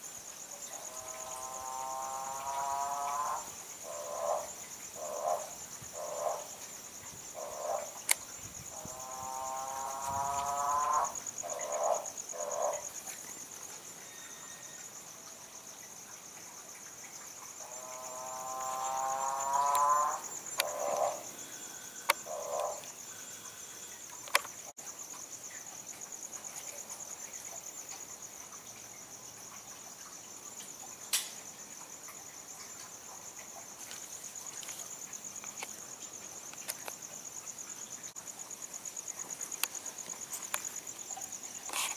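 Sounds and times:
insects chirping trill: 0.0s - 41.9s.

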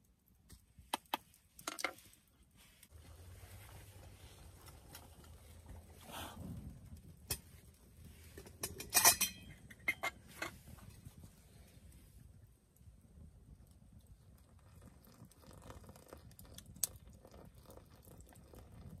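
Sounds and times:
wood fire crackling: 0.0s - 19.0s
metal pot and lid clinking: 8.4s - 10.6s.

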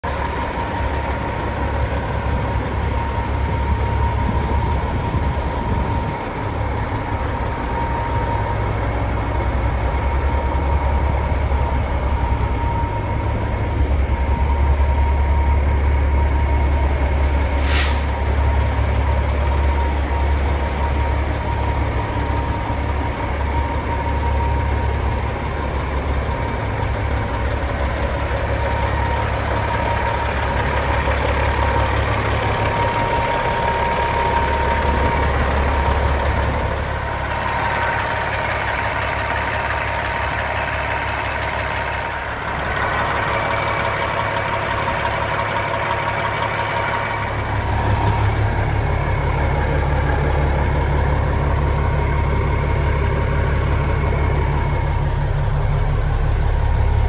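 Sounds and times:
diesel engine idling: 0.0s - 57.0s
sharp hiss of air: 17.6s - 18.2s.

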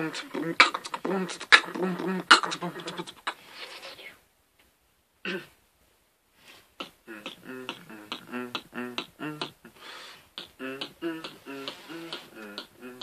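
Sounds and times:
beatboxing: 0.0s - 4.0s, 6.8s - 13.0s.

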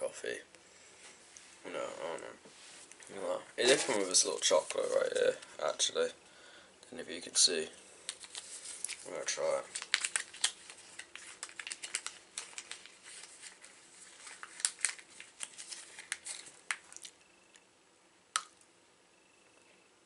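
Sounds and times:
wrapper crinkling: 3.6s - 5.4s, 8.1s - 17.2s.

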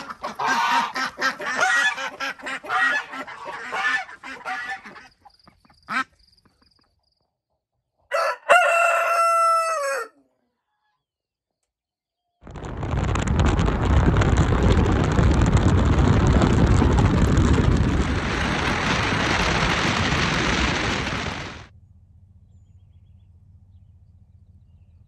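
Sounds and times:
wind buffeting microphone: 12.4s - 21.7s
road noise: 12.5s - 24.8s.

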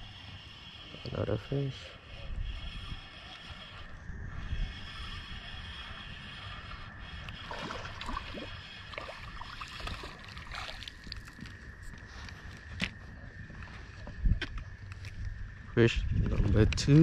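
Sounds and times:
fish splashing at water surface: 7.4s - 11.3s.

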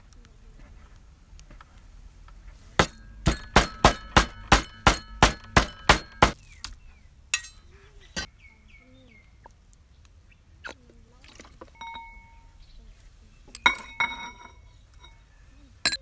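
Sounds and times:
cleaver chopping on wooden block: 2.8s - 6.4s.

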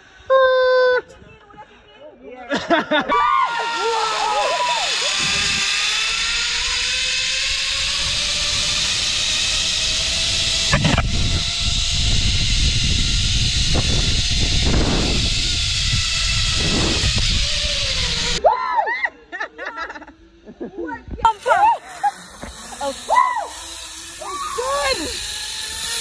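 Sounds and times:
zip-line pulleys whirring on cable: 3.0s - 26.0s
wind rumbling on microphone: 7.5s - 18.4s.

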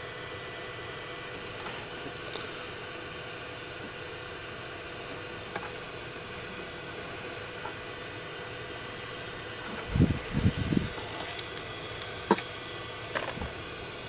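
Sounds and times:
faint hum: 0.0s - 14.0s
small clicks from handling wire: 11.2s - 12.5s.

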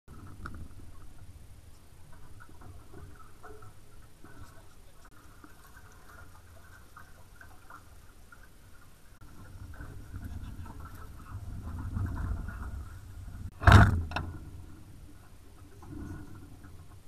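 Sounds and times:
water lapping against hulls: 0.1s - 17.0s
steady low rumble: 9.2s - 17.0s.

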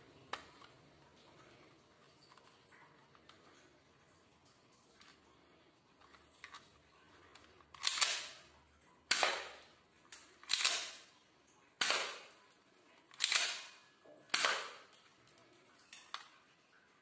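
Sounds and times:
airsoft pistol shots: 9.1s - 9.6s, 11.8s - 12.3s, 14.3s - 14.8s.

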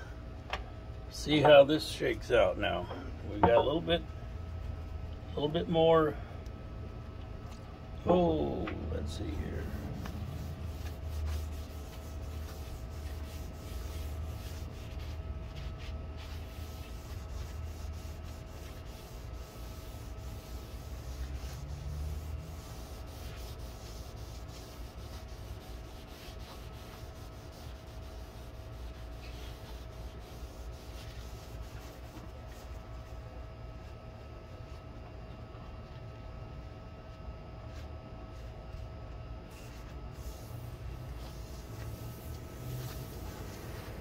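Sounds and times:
faint steady hum: 0.0s - 44.0s
hand rubbing wooden shelf: 8.1s - 33.0s, 39.5s - 44.0s.

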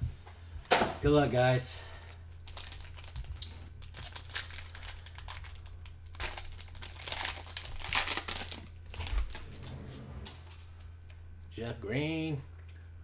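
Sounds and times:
plastic wrappers crinkling and tearing: 2.4s - 9.4s.

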